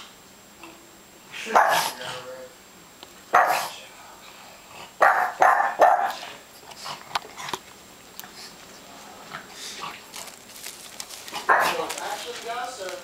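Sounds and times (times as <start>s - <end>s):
dog barking sharply: 1.5s - 2.0s, 3.3s - 3.7s, 5.0s - 6.3s, 11.5s - 11.8s.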